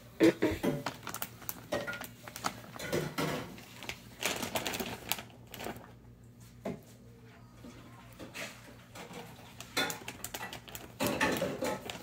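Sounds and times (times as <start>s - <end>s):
plastic pouch crinkling: 0.6s - 6.0s, 9.0s - 12.0s.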